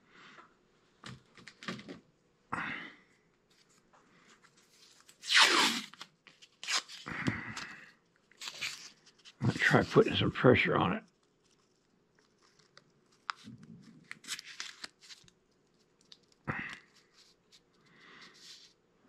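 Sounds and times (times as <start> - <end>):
tape ripping: 5.0 - 7.0, 8.4 - 9.8, 14.1 - 15.3
tape unrolling rasp: 5.1 - 7.0, 8.4 - 10.0.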